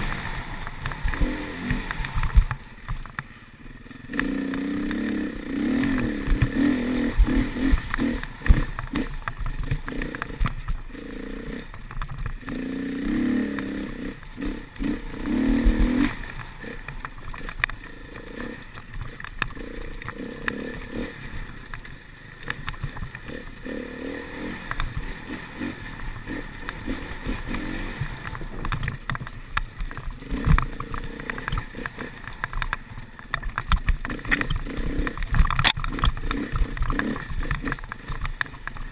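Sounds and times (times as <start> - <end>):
dirt bike engine revving: 0.0 - 2.7, 3.4 - 28.7, 29.9 - 32.6, 33.8 - 38.9
bike rattling over bumps: 0.0 - 38.9.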